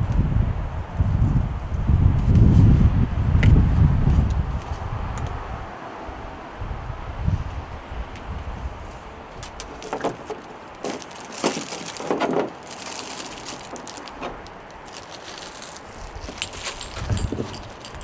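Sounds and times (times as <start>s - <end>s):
plastic bag crinkling: 9.6s - 18.0s.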